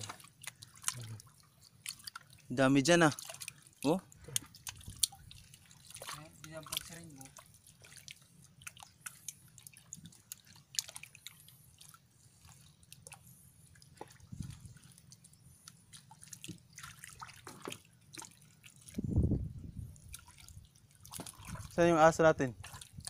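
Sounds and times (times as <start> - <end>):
hands splashing in muddy water: 3.1 - 13.2, 20.0 - 21.8.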